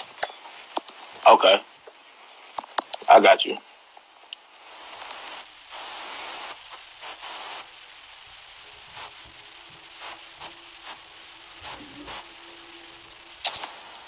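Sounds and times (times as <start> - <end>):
hiss and crackling static: 0.0 - 14.0
short bursts of noise: 4.4 - 14.0.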